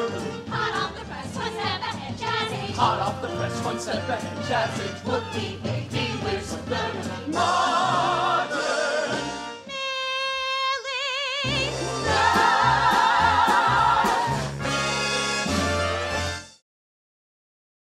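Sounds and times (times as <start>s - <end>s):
group of singers: 0.0s - 9.6s, 10.8s - 14.7s
instrumental accompaniment: 11.4s - 16.6s.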